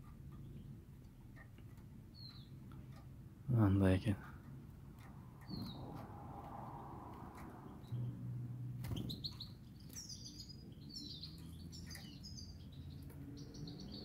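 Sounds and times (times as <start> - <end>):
goldfinch twittering chirps: 2.1 - 2.8, 5.4 - 6.0, 8.8 - 14.0.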